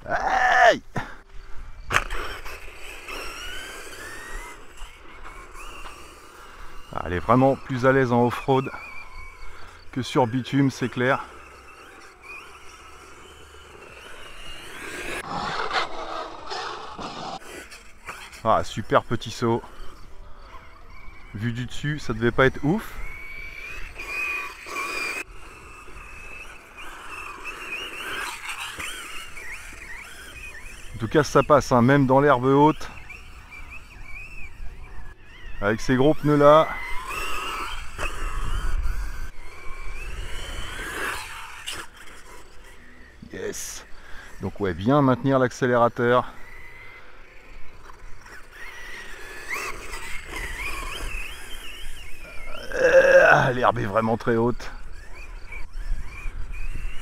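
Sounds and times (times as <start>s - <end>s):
electric motor whining: 0.0s - 57.0s.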